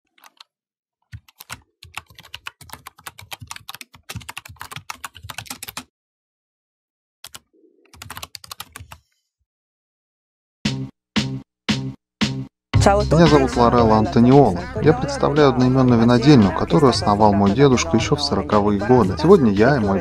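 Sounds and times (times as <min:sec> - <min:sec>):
computer keyboard typing: 0:00.2 - 0:00.5, 0:01.1 - 0:05.9, 0:07.2 - 0:09.0.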